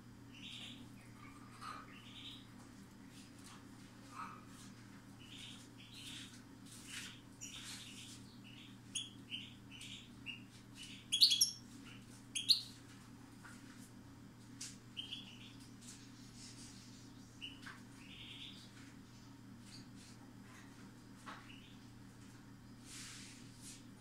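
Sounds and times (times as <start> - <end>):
faint low hum: 0.0 - 24.0
bird twittering song: 0.3 - 2.5, 7.0 - 12.8, 14.9 - 15.7, 16.8 - 18.7.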